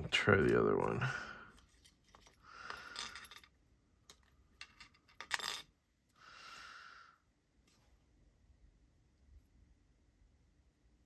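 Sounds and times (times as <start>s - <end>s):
small metal parts clinking: 1.7s - 5.8s.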